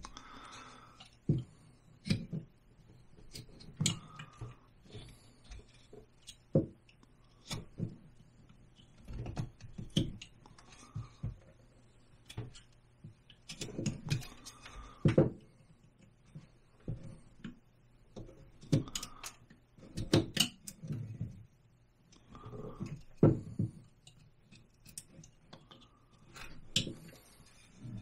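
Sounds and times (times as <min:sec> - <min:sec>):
knife carving wood: 0:01.3 - 0:06.6.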